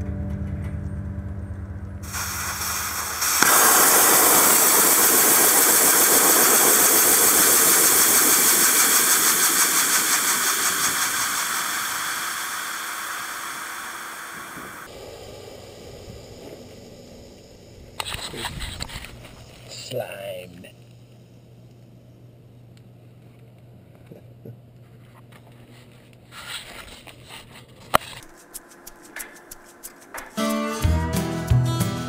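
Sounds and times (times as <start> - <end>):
pressurised gas hissing: 2.0 - 19.9.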